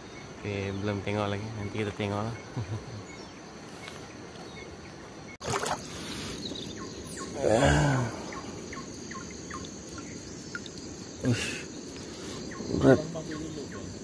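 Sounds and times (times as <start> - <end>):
rising and falling bird call: 6.0 - 14.0.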